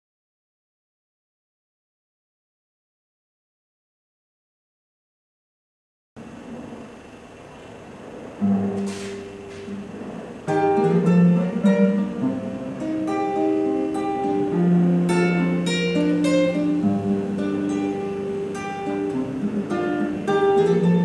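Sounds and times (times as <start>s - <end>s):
classical guitar playing: 7.6s - 21.0s.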